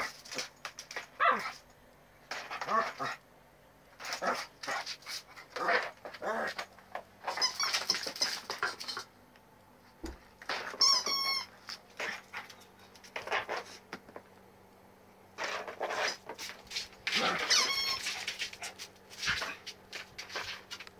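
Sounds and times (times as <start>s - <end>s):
squeaky toy squeaking: 7.2s - 8.4s, 10.6s - 11.6s, 17.2s - 18.3s.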